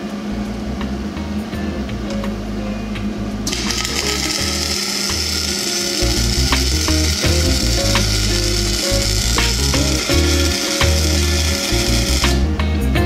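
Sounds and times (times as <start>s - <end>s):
welding arc crackling hiss: 3.5s - 12.4s
sharp welding pops: 3.5s - 12.5s.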